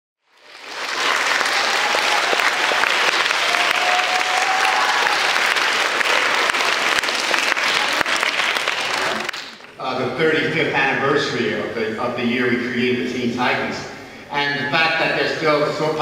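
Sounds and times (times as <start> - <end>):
audience applauding: 0.2 - 9.8.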